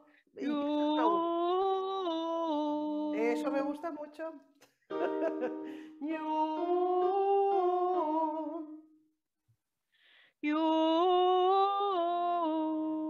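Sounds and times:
woman singing vocal warm-up: 0.4s - 4.3s, 5.0s - 8.9s, 10.4s - 13.0s
short breath: 5.6s - 6.0s, 9.9s - 10.4s.

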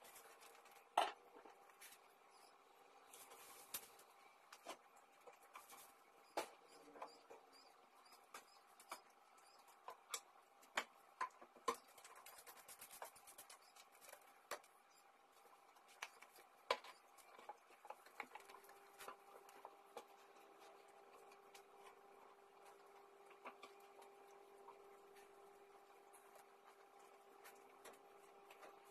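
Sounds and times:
faint steady hum: 0.0s - 28.9s
objects clicking and tapping: 8.2s - 14.8s, 15.7s - 24.3s.

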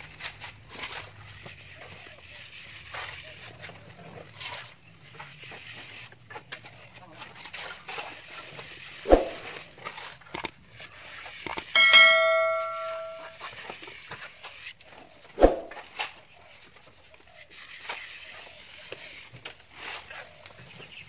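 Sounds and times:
sharp clicks: 10.3s - 10.6s, 11.4s - 11.7s
bright metallic ding: 11.5s - 13.4s.

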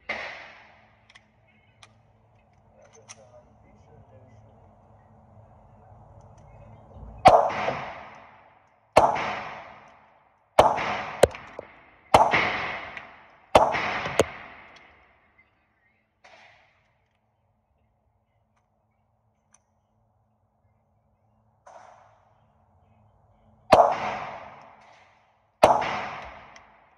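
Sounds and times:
pistol shots echoing indoors: 7.3s - 8.3s, 8.9s - 9.9s, 10.6s - 15.0s, 23.7s - 26.9s.

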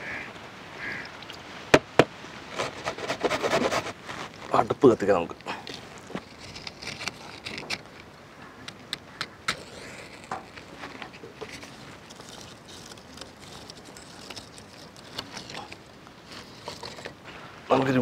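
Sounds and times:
match striking: 8.7s - 17.2s.

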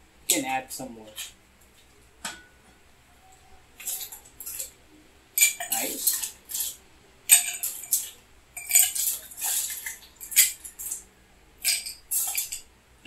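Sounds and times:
ice cubes clattering into glass: 7.3s - 11.0s.

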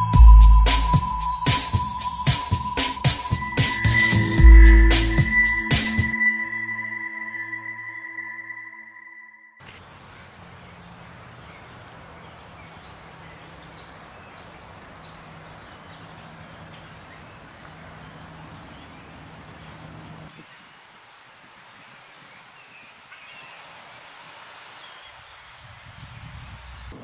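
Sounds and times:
background hiss: 0.0s - 6.2s, 9.6s - 27.0s
faint high whine: 0.0s - 9.6s
bird chirps: 0.0s - 20.4s
low rumble: 3.9s - 6.0s.

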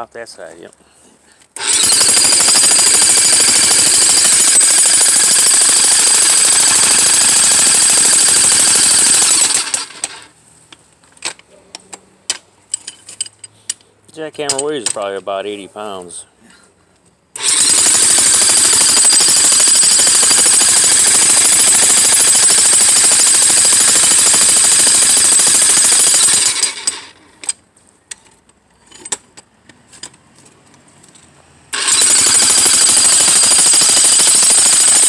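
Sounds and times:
jackhammer hammering concrete: 1.6s - 10.2s, 17.4s - 27.1s, 31.8s - 35.0s.

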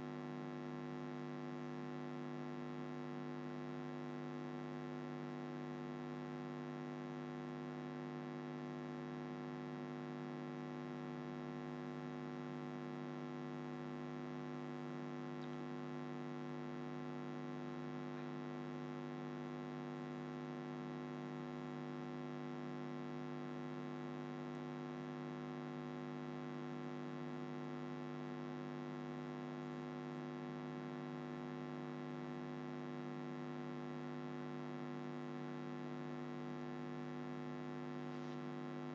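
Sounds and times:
electrical mains hum: 13.8s - 19.4s, 38.0s - 38.9s.

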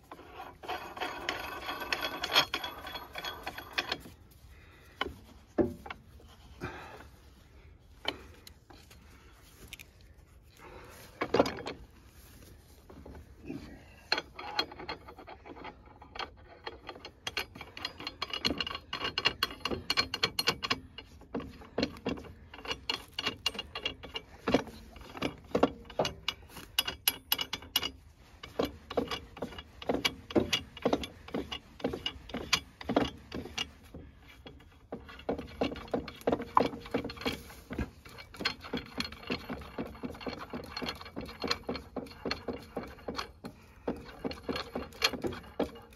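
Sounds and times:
metal frame knocking: 0.1s - 4.2s, 4.9s - 6.9s, 14.1s - 45.9s
metallic clicking and clinking: 0.1s - 4.2s, 14.1s - 45.9s.

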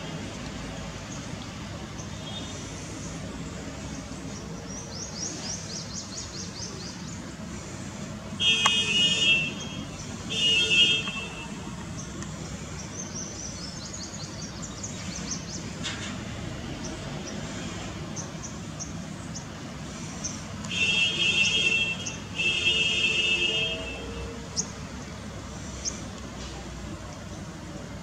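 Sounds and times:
town traffic hum: 0.0s - 28.0s
vehicle horn honks: 8.4s - 11.6s.

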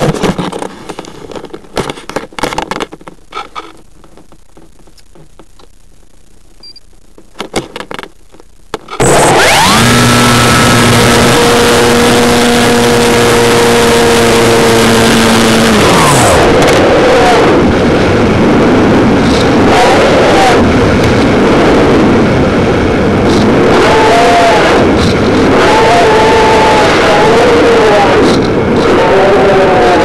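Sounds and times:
electric motor and propeller whining: 9.0s - 29.1s
wind rushing on microphone: 15.5s - 30.0s.

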